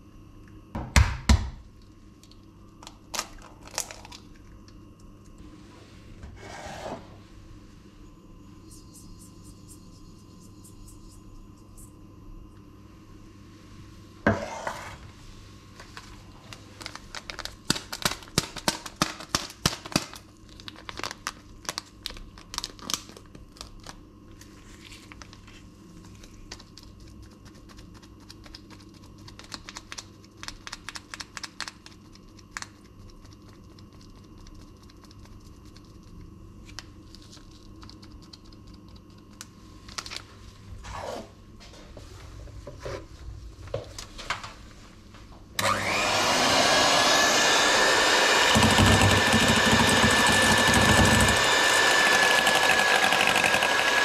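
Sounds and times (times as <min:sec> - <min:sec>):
faint steady hum: 0:00.0 - 0:47.1
paper sachet tearing and crinkling: 0:16.6 - 0:24.0.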